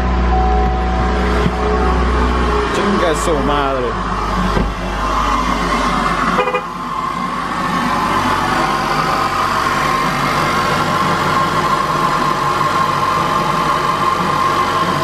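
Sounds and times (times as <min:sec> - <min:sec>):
car engine idling loudly: 0:00.0 - 0:15.0.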